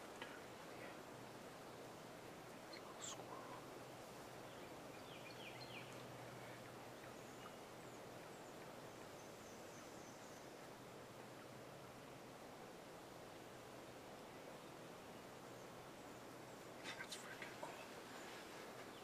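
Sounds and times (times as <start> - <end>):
low steady hum: 0.0 - 19.0
small birds chirping: 1.6 - 10.8, 14.3 - 19.0.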